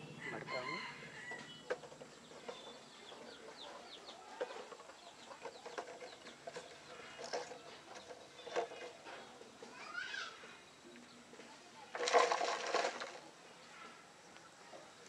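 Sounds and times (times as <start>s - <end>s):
small birds chirping: 0.0s - 11.9s
chicken clucking: 1.4s - 9.0s.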